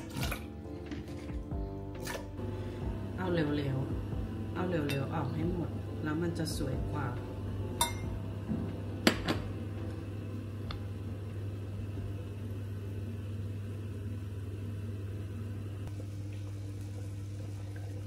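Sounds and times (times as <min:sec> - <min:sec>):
kitchen appliance humming: 0:00.0 - 0:18.0
metal spoon clinking on glass: 0:07.8 - 0:08.1.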